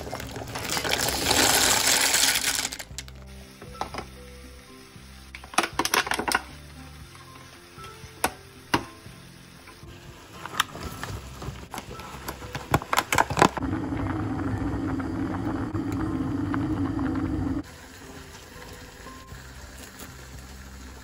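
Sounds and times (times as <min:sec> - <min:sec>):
pot of water boiling: 0:00.0 - 0:08.5, 0:09.2 - 0:21.0
plastic container crinkling and clicking: 0:11.7 - 0:13.6.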